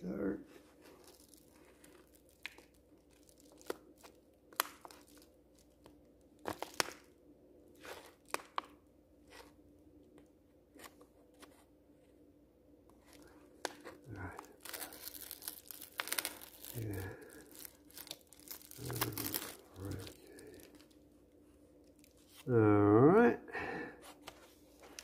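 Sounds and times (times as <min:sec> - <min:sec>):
faint steady hum: 0:00.0 - 0:25.0
paper envelope tearing and crinkling: 0:00.8 - 0:07.1, 0:13.1 - 0:21.0.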